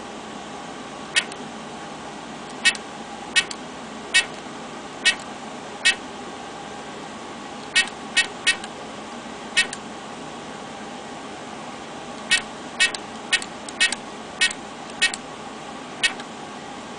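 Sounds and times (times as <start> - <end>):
keypad beeps: 12.3 - 15.2.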